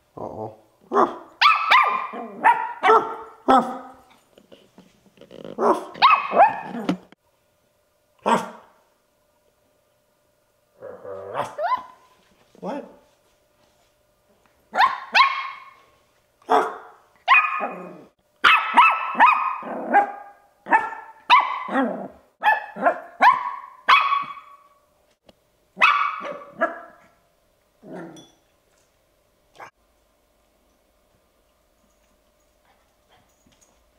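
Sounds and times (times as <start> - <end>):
puppy barking high-pitched: 0.9 - 4.1, 5.6 - 6.9, 8.2 - 8.7, 11.3 - 12.9, 14.7 - 15.8, 16.5 - 24.8, 25.8 - 27.2.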